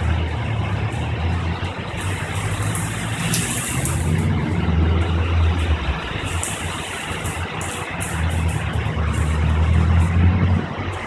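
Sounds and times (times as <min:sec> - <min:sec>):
heavy rain hissing: 0:01.8 - 0:09.4.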